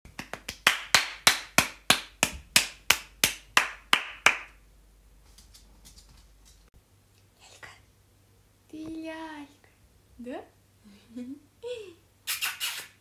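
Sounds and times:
hands clapping: 0.1 - 4.6.

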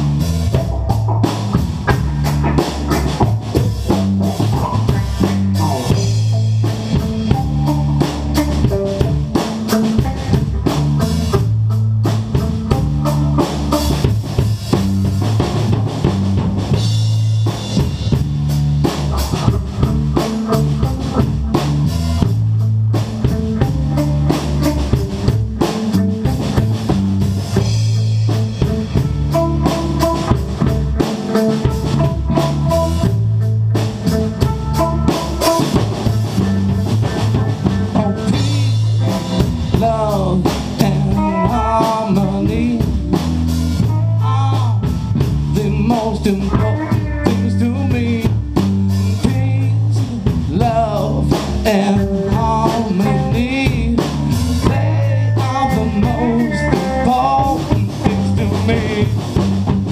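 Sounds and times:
electric bass line: 0.0 - 59.9
soul band playing: 0.0 - 59.9
electric guitar repeated high notes: 27.5 - 45.9.

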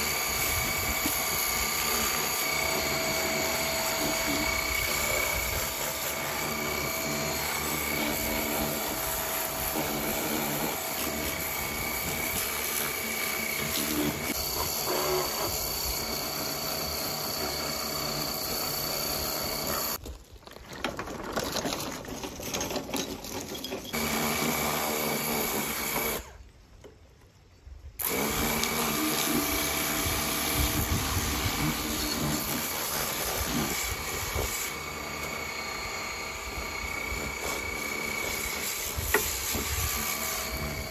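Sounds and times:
pressure washer motor whine: 0.0 - 20.0, 28.0 - 40.9.

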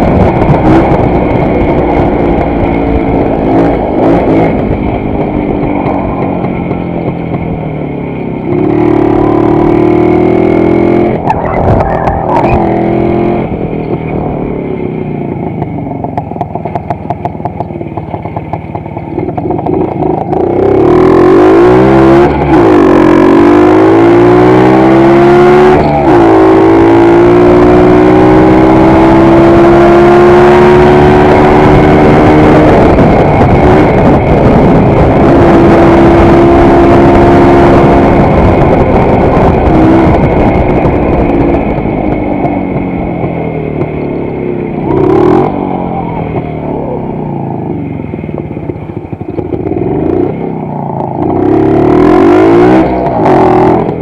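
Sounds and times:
two-stroke motorcycle engine: 0.0 - 54.0.

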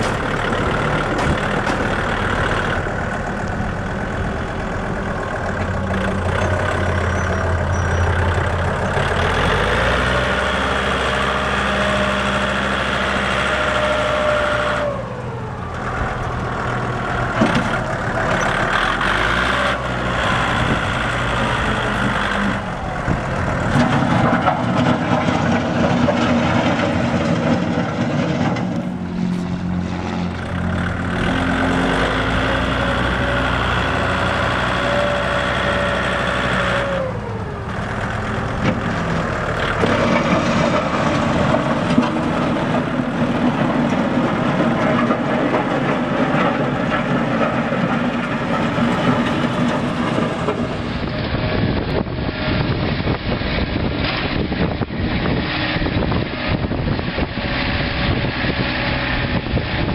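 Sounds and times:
tractor diesel engine running: 0.0 - 59.9.

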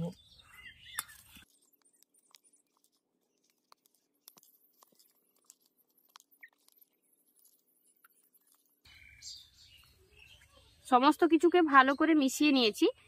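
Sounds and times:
wet squelches of stirring: 0.9 - 8.9.

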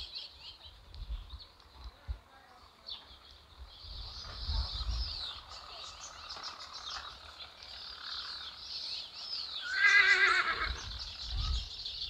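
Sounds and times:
small birds chirping: 0.0 - 12.0
horse whinnying: 9.6 - 10.8.

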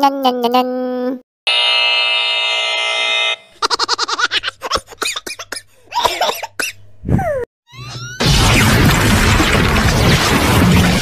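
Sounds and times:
wrong-answer buzzer: 1.5 - 3.6
cartoonish laughing sound effect: 3.6 - 5.0.

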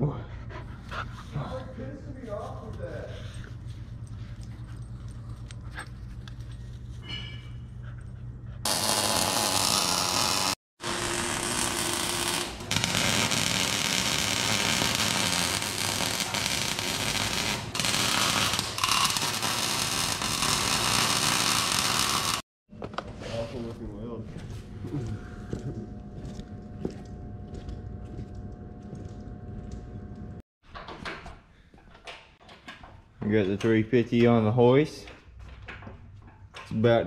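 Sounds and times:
welder arc crackling and hissing: 8.7 - 22.4.

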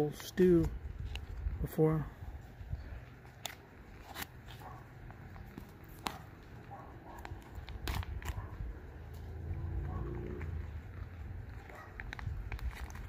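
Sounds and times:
foil pouch crinkling: 3.2 - 4.6, 12.0 - 13.0
foil pouch tearing open: 3.4 - 4.6, 7.2 - 8.5, 12.0 - 13.0.

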